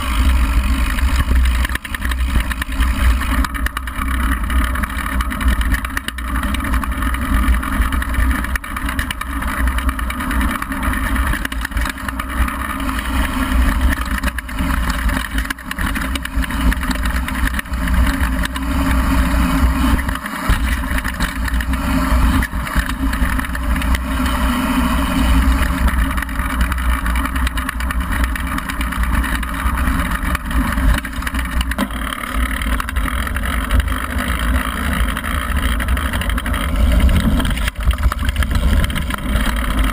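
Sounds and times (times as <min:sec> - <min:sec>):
bike knocking and rattling: 0:00.0 - 0:39.9.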